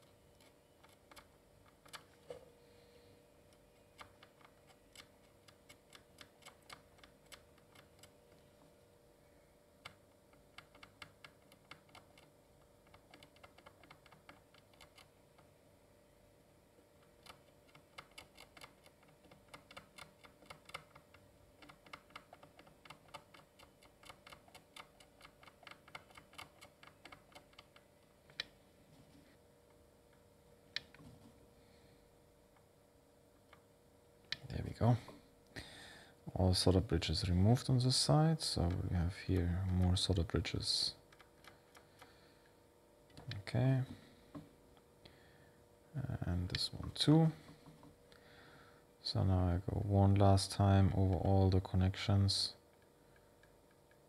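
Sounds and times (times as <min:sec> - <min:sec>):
faint steady hum: 0:00.0 - 0:54.0.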